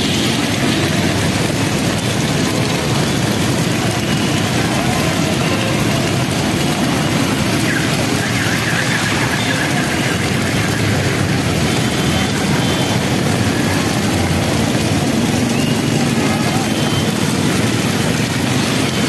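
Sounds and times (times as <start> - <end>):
tyres swishing through water: 0.0 - 19.0
vehicle engines running: 0.0 - 19.0.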